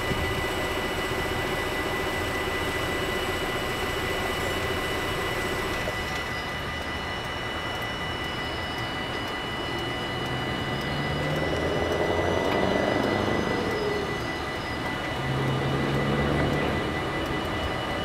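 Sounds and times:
level crossing bells ringing: 6.2 - 18.0.

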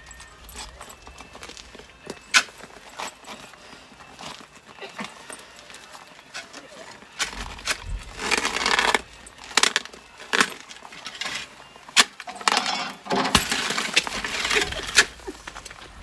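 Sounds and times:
shovel blade clinking on ice: 6.3 - 15.8.

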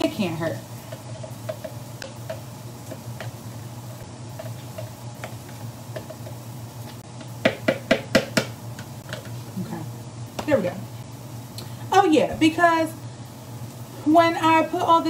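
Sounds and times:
low steady hum: 0.0 - 15.0
utensil stirring in a bowl: 0.1 - 9.5.

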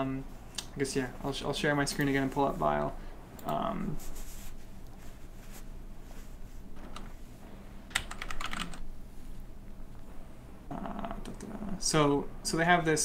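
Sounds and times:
computer keyboard typing: 7.9 - 8.8.

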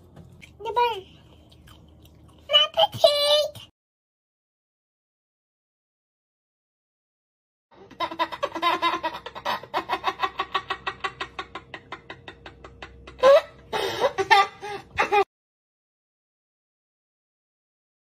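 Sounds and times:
toddler laughing: 7.9 - 15.2.

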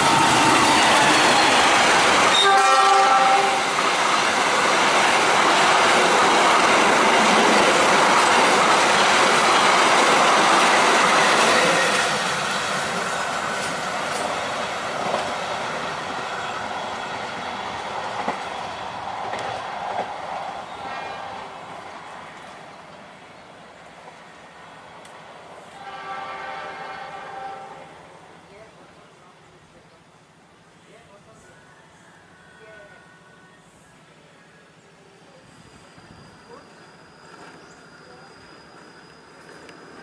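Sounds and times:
train rushing and clattering: 0.0 - 29.1, 35.3 - 40.0
train horn: 2.3 - 3.8, 20.8 - 21.5, 25.7 - 27.9.

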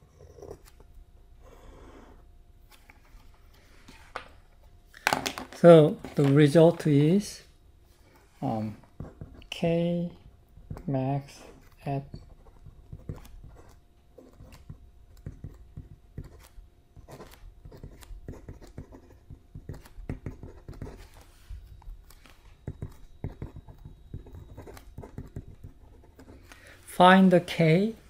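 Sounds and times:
pen scratching on paper: 9.0 - 9.6, 10.6 - 21.3, 22.6 - 26.5.

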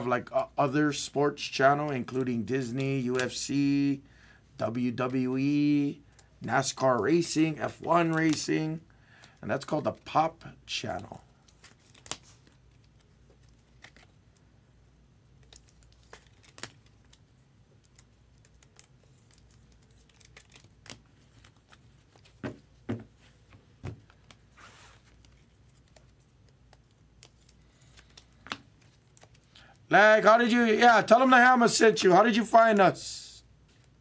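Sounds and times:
light clicks of trading cards: 24.0 - 29.8.

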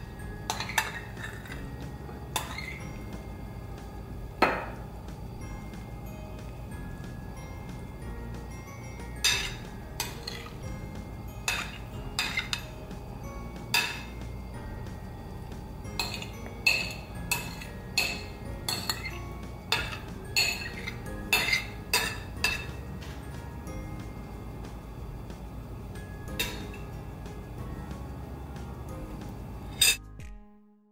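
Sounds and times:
fork clinking on ceramic plate: 0.5 - 1.6, 2.4 - 2.8, 9.2 - 10.6, 11.4 - 12.7, 16.0 - 19.1, 19.7 - 22.8, 26.3 - 26.9.

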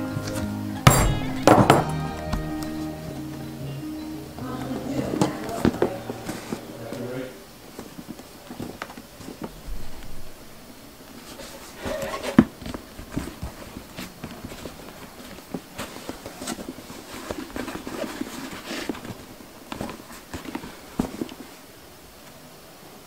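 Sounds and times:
clicks and rustles of leather: 11.1 - 22.3.

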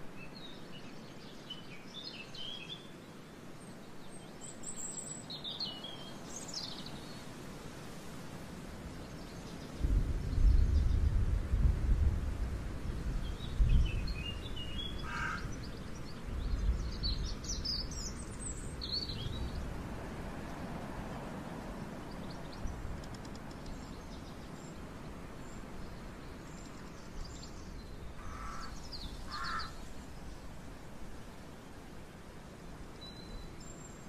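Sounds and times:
wind rumbling on microphone: 7.9 - 33.8
birds calling: 14.1 - 19.7, 22.1 - 30.5.

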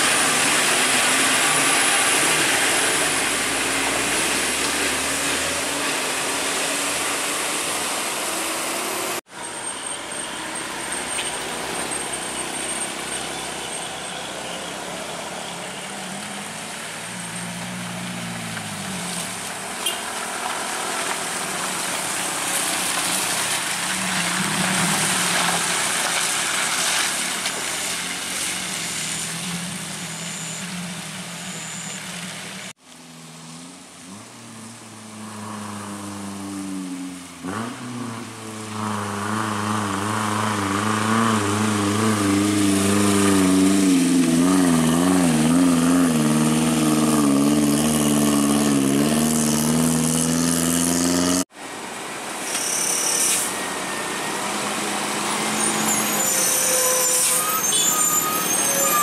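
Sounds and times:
diesel truck pulling uphill: 0.0 - 19.6, 37.4 - 59.0
high squeals: 8.3 - 15.8, 52.4 - 59.0.

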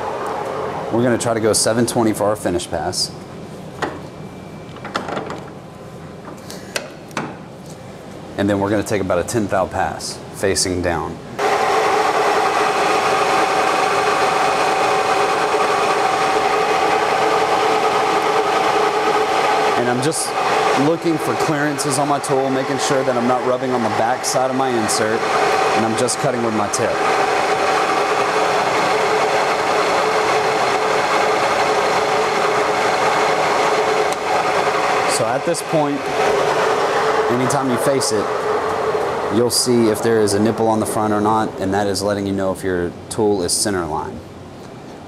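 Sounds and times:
lathe humming while cutting: 11.4 - 42.0.

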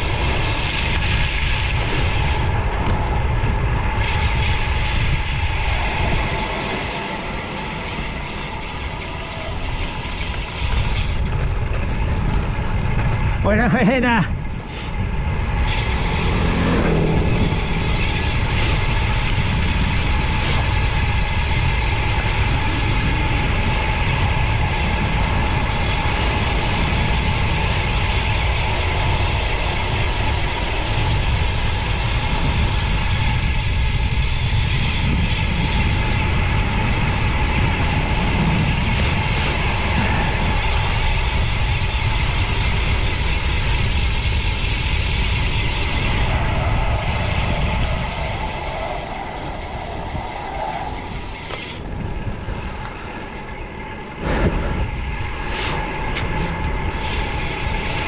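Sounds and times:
wind noise on microphone: 0.0 - 58.0.

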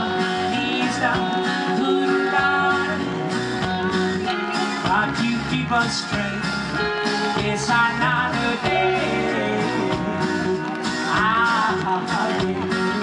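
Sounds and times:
band music with guitar: 0.0 - 13.0.

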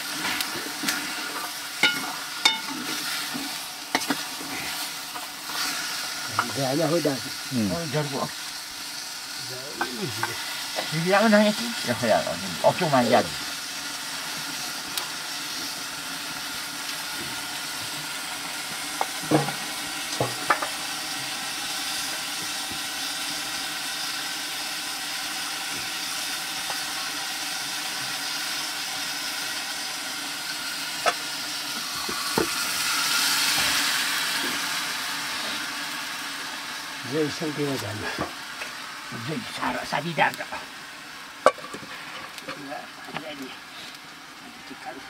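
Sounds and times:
curry sizzling in a pot: 0.0 - 45.0.

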